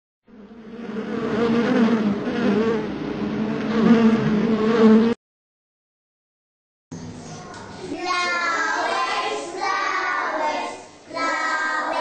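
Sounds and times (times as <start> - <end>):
bee buzzing: 0.3 - 5.2.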